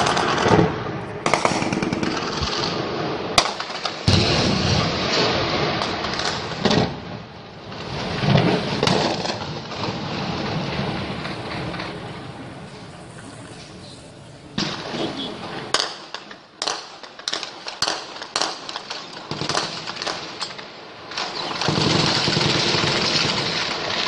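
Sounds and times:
automatic weapons fire: 0.0s - 7.0s, 14.6s - 24.0s
sharp loud gunshots: 0.0s - 7.1s, 14.6s - 20.5s, 21.1s - 24.0s.

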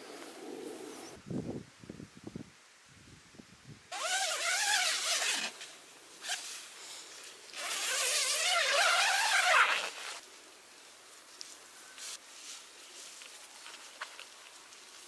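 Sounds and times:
tent zipper being pulled: 3.9s - 5.6s, 6.2s - 6.6s, 7.5s - 10.2s.

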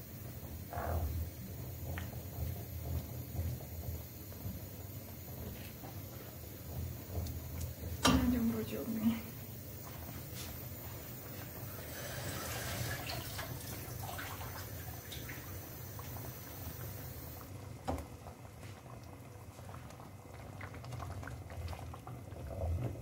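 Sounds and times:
ragout bubbling and popping: 19.8s - 23.0s.

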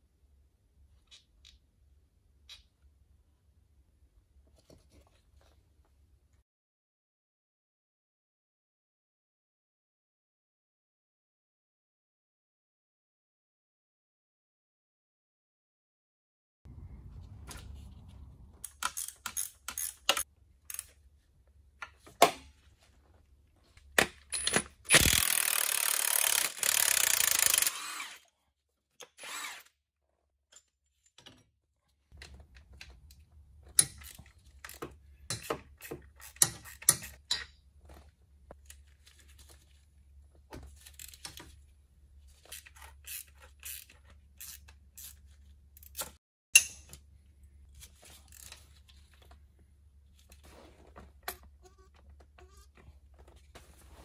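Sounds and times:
tools clicking on metal: 18.6s - 21.0s, 33.7s - 37.6s
power tool whirring: 24.9s - 28.3s, 29.2s - 29.8s.

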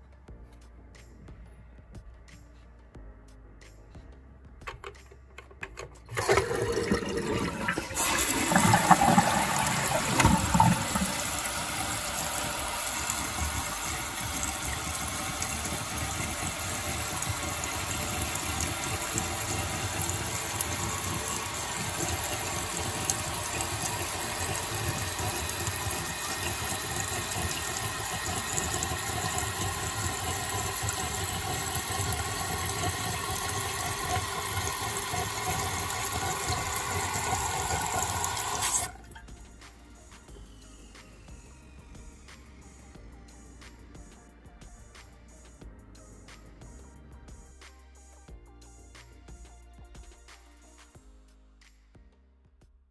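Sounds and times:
water churning in toilet tank: 6.1s - 39.0s
water pouring with steady hiss: 6.1s - 39.0s.

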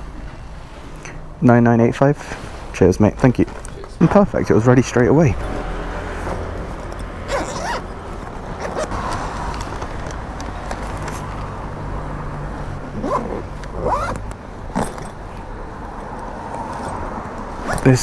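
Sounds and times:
low hum of street traffic: 0.0s - 18.0s
backpack zip pulled: 7.3s - 7.9s, 8.6s - 9.8s, 13.0s - 15.2s, 17.6s - 17.9s.

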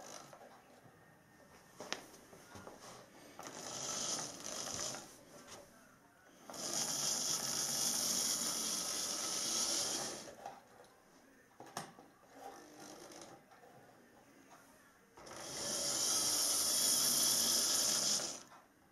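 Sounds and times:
small electric motor whirring: 3.4s - 5.0s, 6.5s - 10.4s, 15.2s - 18.5s
model train wheels rattling on rails: 6.5s - 10.5s, 15.2s - 18.5s.

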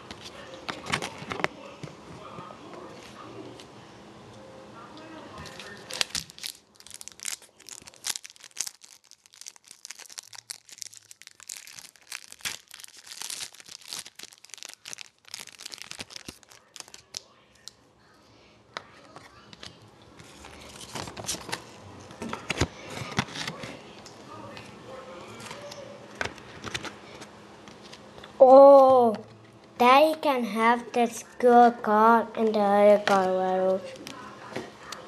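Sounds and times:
foil wrapper tearing and crinkling: 5.5s - 17.2s.

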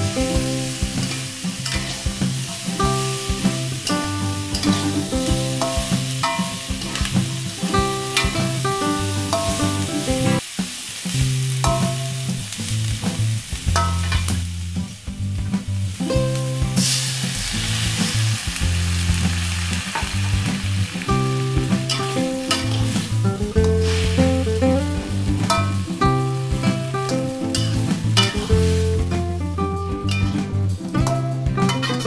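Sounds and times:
background music with bass: 0.0s - 32.0s
food sizzling in a wok: 0.0s - 32.0s
metal spatula scraping wok: 1.0s - 2.8s, 5.6s - 8.4s, 21.9s - 24.6s.

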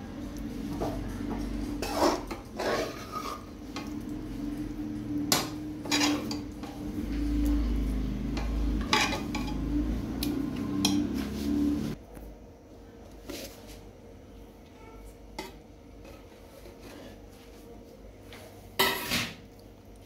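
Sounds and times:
metal spoon scraping a steel pan: 1.7s - 4.0s, 5.3s - 6.8s, 8.3s - 9.8s
low hum: 3.7s - 12.1s.

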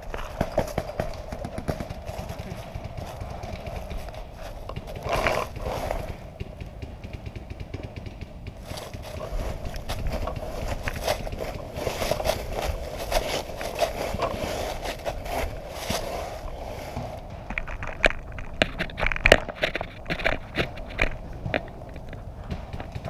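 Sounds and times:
rustling and crunching of dry leaves: 0.0s - 6.6s, 8.0s - 23.0s
low rumble of handling noise: 0.0s - 23.0s.

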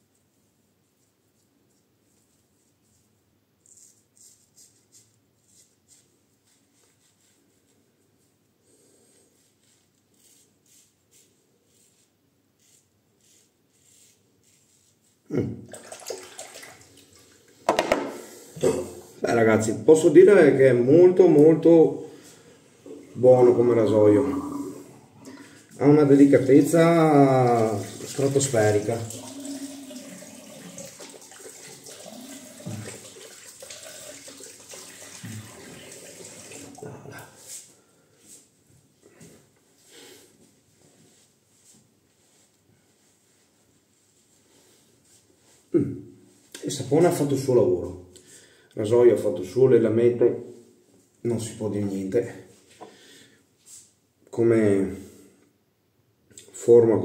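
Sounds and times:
running tap water: 15.7s - 17.6s, 23.8s - 36.9s.

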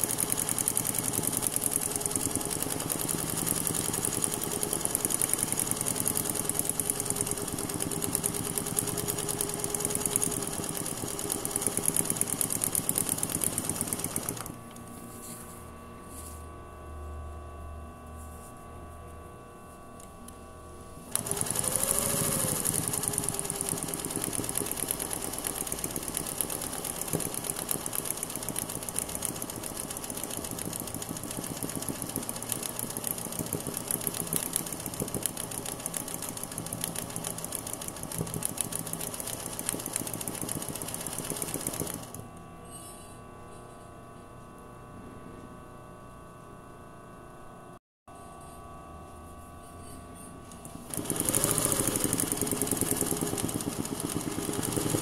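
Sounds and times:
sewing machine stitching: 0.0s - 14.6s, 21.1s - 42.3s, 50.9s - 55.0s.

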